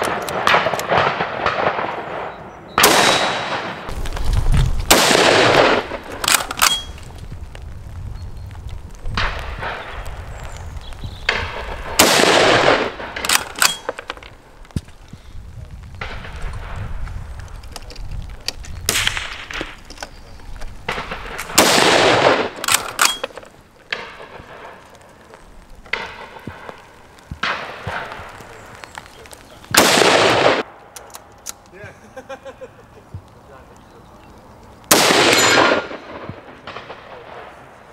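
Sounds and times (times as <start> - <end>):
rifle shots: 0.0 - 4.0, 4.9 - 7.0, 11.3 - 14.2, 18.9 - 19.8, 20.8 - 24.9, 29.7 - 30.7, 34.9 - 37.7.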